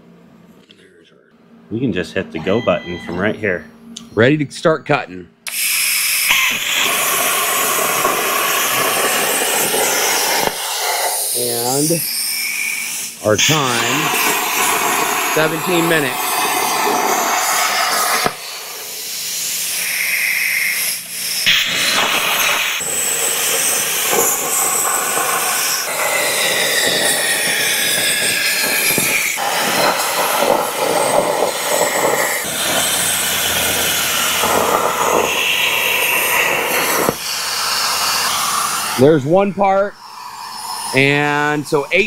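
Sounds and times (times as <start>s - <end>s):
plasma torch hissing: 5.5s - 42.0s.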